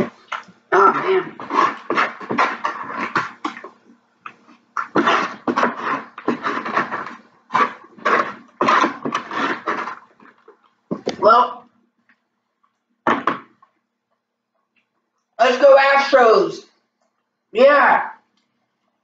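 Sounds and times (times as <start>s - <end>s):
fork scraping foam container: 0.8s - 3.8s, 4.5s - 10.4s.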